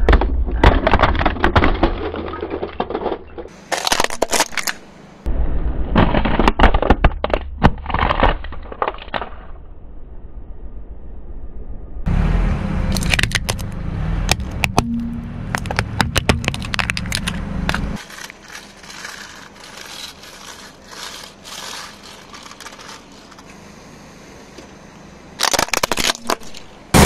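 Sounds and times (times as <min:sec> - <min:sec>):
plastic toys cracking under tyre: 0:00.0 - 0:04.8, 0:05.9 - 0:09.6, 0:12.9 - 0:14.8, 0:15.5 - 0:23.5, 0:25.4 - 0:27.0
low rumble: 0:09.4 - 0:18.0.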